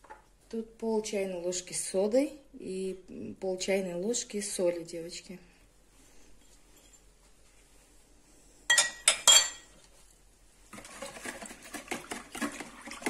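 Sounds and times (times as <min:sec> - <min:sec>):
whisk beating batter in bowl: 0:10.7 - 0:13.0.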